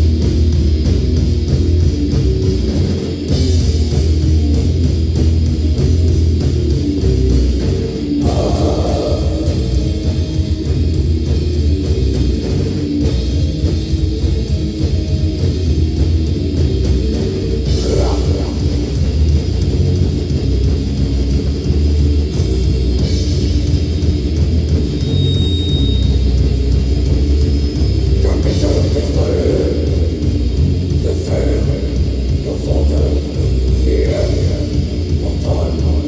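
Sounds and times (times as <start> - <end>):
distorted electric guitars: 0.0 - 36.0
drum kit: 0.0 - 36.0.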